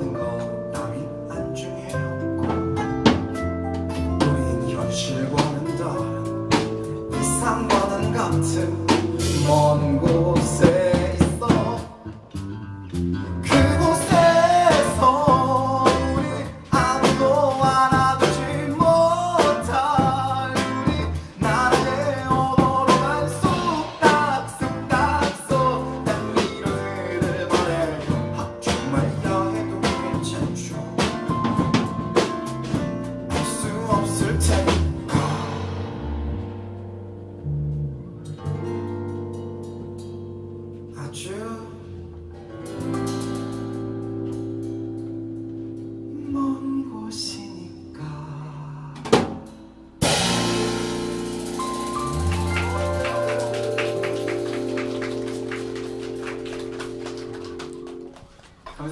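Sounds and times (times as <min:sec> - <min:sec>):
man singing: 0:00.0 - 0:02.2, 0:04.0 - 0:12.2, 0:13.4 - 0:32.0, 0:32.7 - 0:35.9, 0:40.9 - 0:42.1, 0:46.1 - 0:49.3
live band playing pop song: 0:01.8 - 0:12.1, 0:13.0 - 0:36.8, 0:50.0 - 0:58.9.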